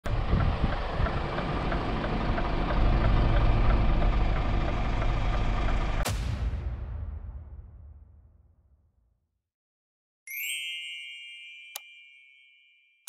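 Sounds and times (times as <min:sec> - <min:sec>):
diesel truck engine idling: 0:00.0 - 0:06.0.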